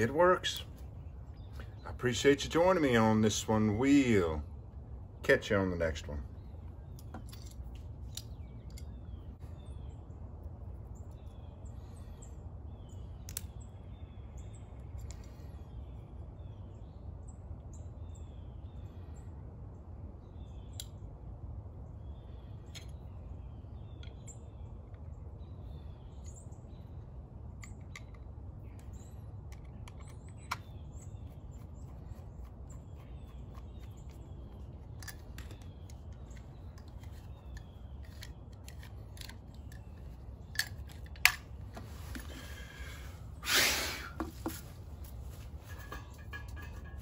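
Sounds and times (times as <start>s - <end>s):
small birds chirping: 0.0s - 47.0s
sharp clicks of tools handled: 27.6s - 28.3s, 34.8s - 42.2s.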